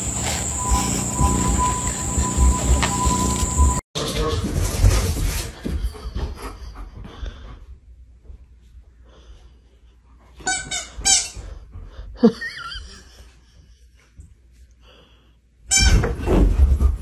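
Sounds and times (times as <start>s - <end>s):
rubber squeaky toy squeaking: 10.4s - 11.4s, 15.7s - 16.1s.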